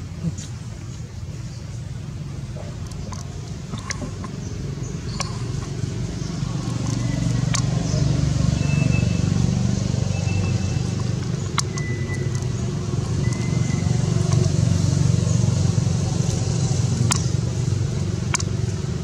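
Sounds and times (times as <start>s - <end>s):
engine humming: 0.0s - 19.0s
sharp clicks: 2.8s - 9.0s, 10.1s - 14.8s, 16.3s - 17.4s, 18.2s - 18.6s.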